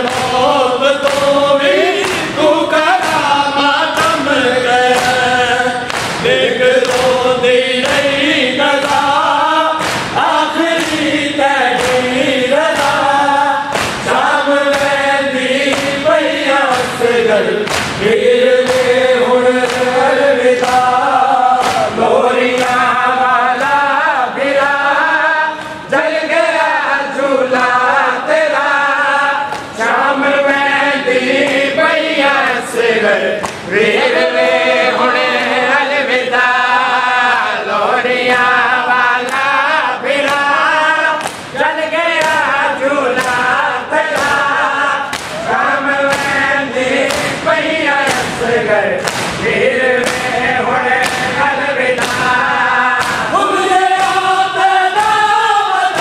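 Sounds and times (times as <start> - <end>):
chest slaps: 0.0 - 7.2, 9.8 - 11.2, 11.8 - 16.1, 16.7 - 21.0, 21.6 - 22.8, 29.5 - 29.8, 33.4 - 33.8, 41.2 - 42.6, 43.2 - 52.4, 53.0 - 53.4
men chanting in unison: 0.0 - 56.0.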